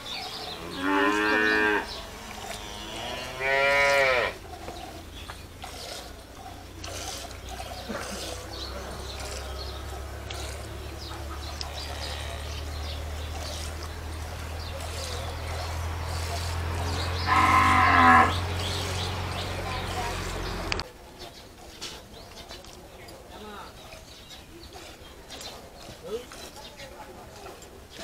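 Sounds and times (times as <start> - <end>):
cow mooing: 0.4 - 4.7, 8.3 - 20.6.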